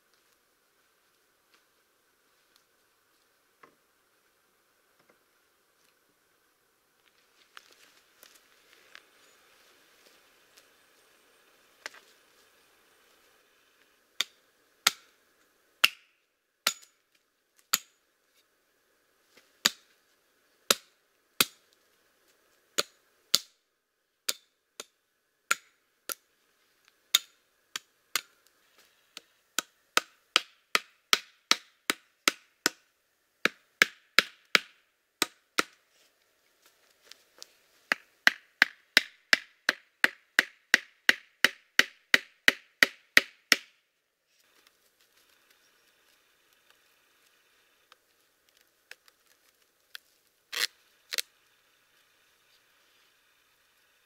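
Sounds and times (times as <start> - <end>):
hatchet knocking wooden stakes: 14.2 - 15.1, 15.8 - 17.0, 17.7 - 18.0, 19.6 - 19.8, 20.7 - 21.6, 22.8 - 23.6, 24.3 - 26.2, 27.1 - 28.4, 29.2 - 35.8, 37.9 - 43.8.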